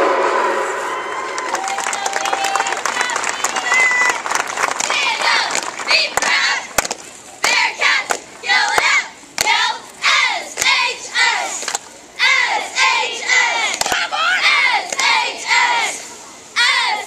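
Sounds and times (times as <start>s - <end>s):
cheerleaders shouting in unison: 12.2s - 16.0s, 16.6s - 17.0s.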